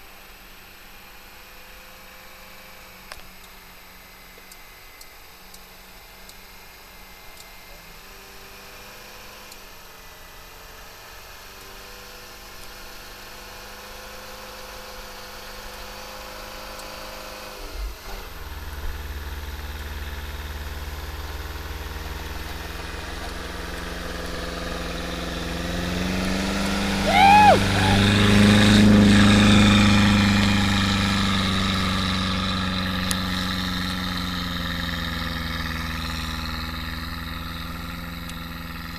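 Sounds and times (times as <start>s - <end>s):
pickup truck engine running: 18.4s - 38.9s.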